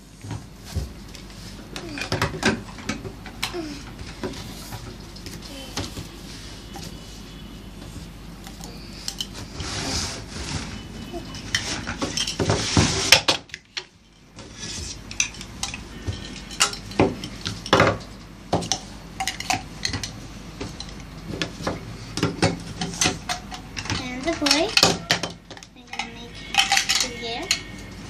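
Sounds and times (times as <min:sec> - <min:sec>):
plastic toy pieces clacking: 0:25.9 - 0:27.6.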